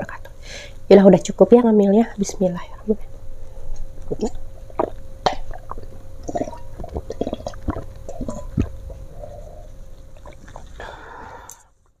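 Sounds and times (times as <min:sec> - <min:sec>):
person gulping and swallowing: 0:04.0 - 0:11.6.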